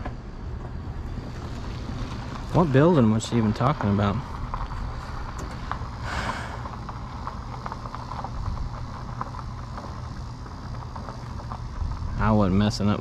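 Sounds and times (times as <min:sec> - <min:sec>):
vehicle engine idling: 0:00.0 - 0:13.0.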